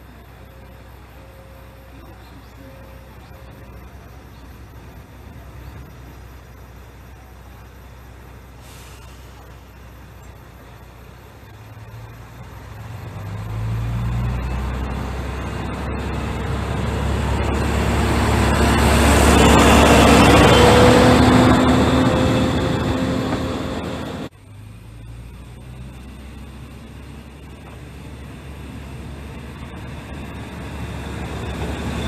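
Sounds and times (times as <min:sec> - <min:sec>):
diesel railcar engine revving: 0:00.0 - 0:32.0
train rolling past: 0:12.4 - 0:24.3, 0:27.5 - 0:32.0.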